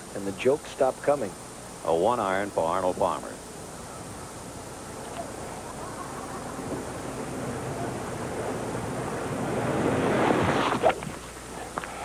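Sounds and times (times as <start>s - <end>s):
golf crowd reacting: 5.2s - 9.3s.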